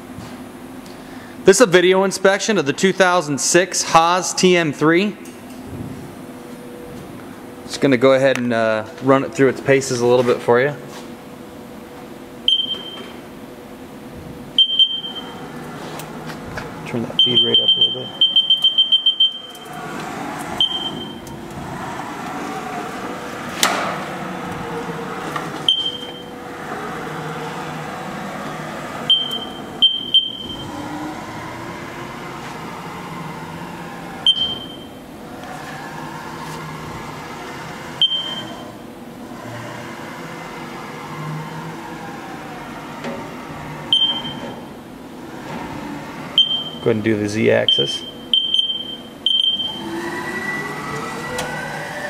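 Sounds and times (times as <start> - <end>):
servo whine: 11.2 - 52.0.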